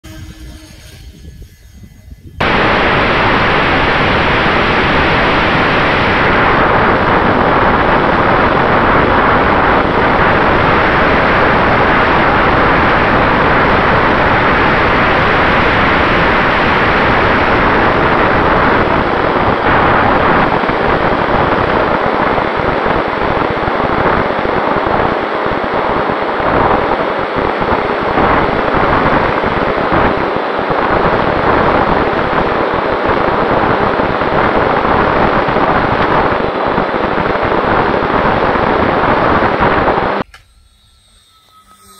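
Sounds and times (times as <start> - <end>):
wind and propeller noise: 1.2 - 40.4
faint steady tone: 40.2 - 41.9.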